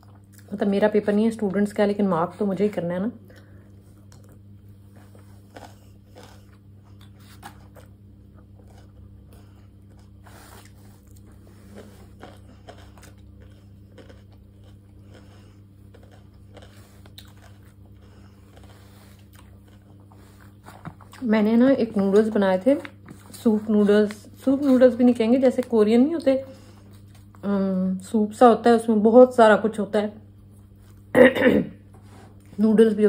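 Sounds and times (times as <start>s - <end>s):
steady low hum: 0.0s - 33.0s
person chewing food: 3.3s - 21.2s, 26.2s - 27.4s.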